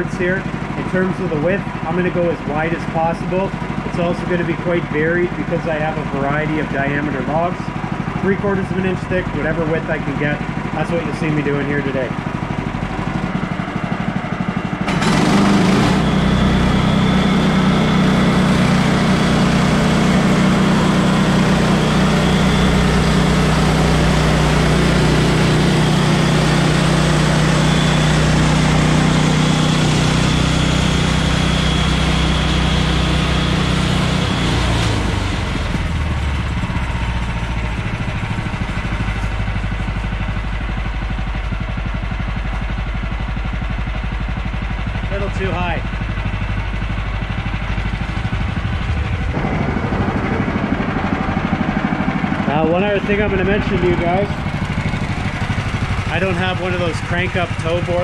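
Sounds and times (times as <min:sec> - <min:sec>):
small gas engine running: 0:00.0 - 0:58.0.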